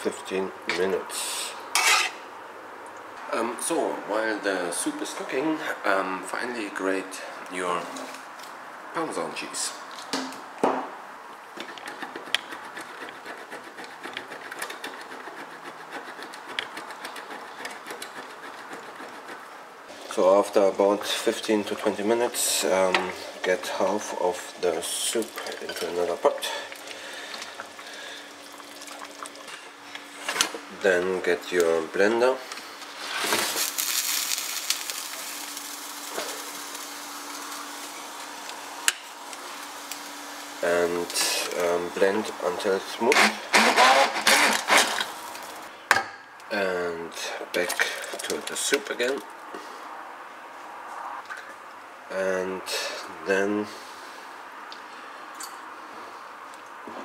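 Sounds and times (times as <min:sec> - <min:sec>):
cheese rasping on grater: 0:11.8 - 0:19.5
low hum and soft hiss: 0:19.6 - 0:43.5.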